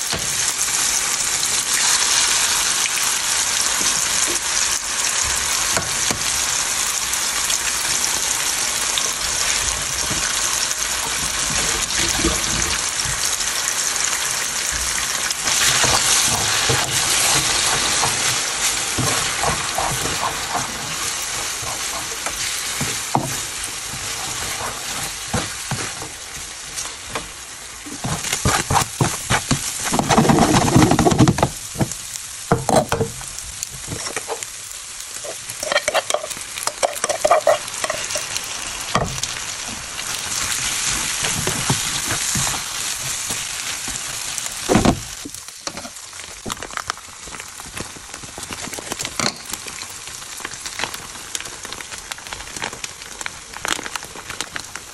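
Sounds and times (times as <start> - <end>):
food sizzling in hot oil: 0.0 - 54.9
spatula scraping a pan: 15.2 - 26.4, 27.9 - 31.4, 33.8 - 39.2.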